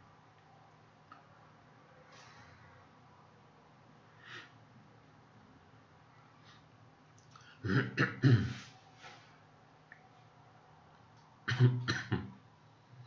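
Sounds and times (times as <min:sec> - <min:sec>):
person coughing: 0:07.6 - 0:08.7, 0:11.5 - 0:12.3.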